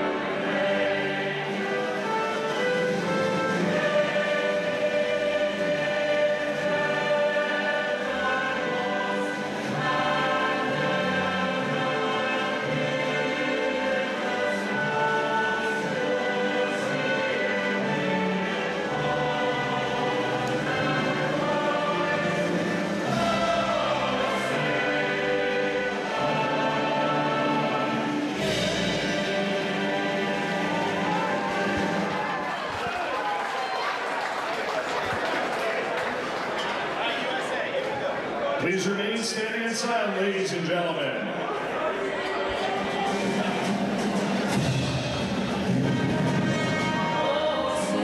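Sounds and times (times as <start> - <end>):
choir singing long held notes: 0.0 - 32.6, 42.4 - 48.0
choral and orchestral music: 0.0 - 34.6, 35.2 - 48.0.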